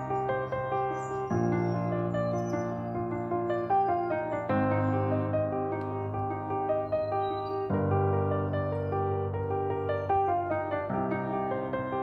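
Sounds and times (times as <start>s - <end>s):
gentle piano music: 0.0s - 12.0s.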